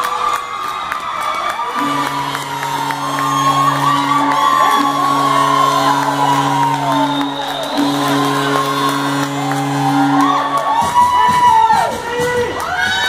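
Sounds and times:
crowd cheering and whooping: 0:00.0 - 0:13.0
goal horn blasts: 0:01.7 - 0:10.9.

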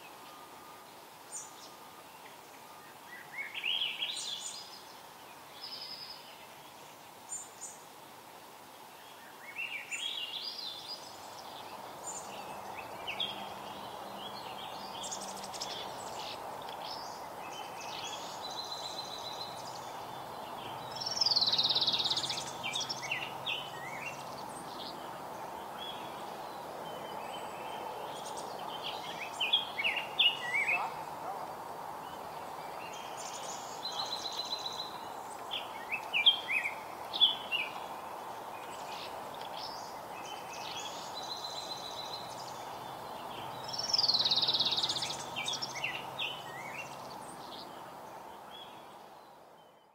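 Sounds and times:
steady background noise: 0:00.0 - 0:49.6
songbirds singing and chirping: 0:00.0 - 0:49.9.

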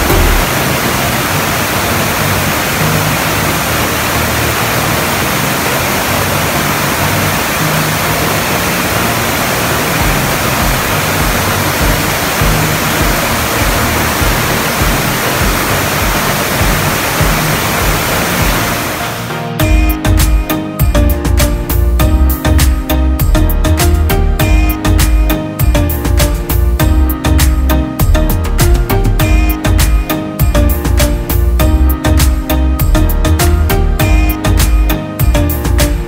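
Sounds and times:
waterfall rushing over rocks: 0:00.0 - 0:20.1.

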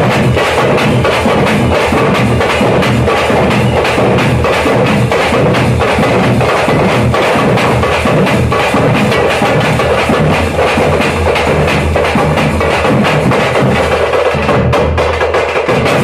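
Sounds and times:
barrel drum beating: 0:00.0 - 0:16.0
frame drums beaten with sticks: 0:00.0 - 0:16.0.

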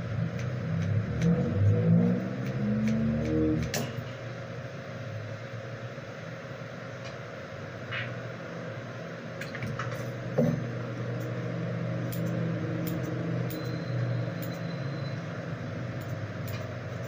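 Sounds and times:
steady low hum: 0:00.0 - 0:17.0
scissors snipping: 0:00.3 - 0:01.4, 0:02.1 - 0:03.9.

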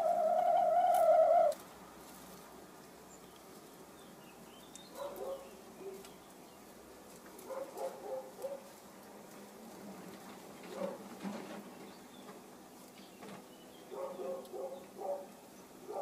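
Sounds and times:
hen drawn-out call: 0:00.0 - 0:01.6.

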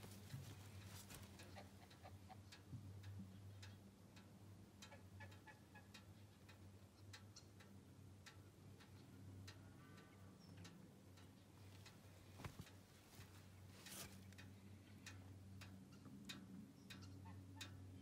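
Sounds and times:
faint ticks and clicks: 0:00.0 - 0:18.0
low steady hum: 0:00.0 - 0:18.0.

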